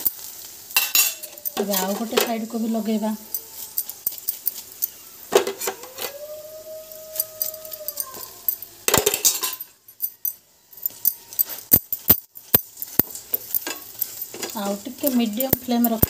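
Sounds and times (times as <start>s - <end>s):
utensil scraping on griddle: 0.0s - 9.6s, 10.8s - 16.0s
dog howling: 3.1s - 4.3s, 5.1s - 8.9s.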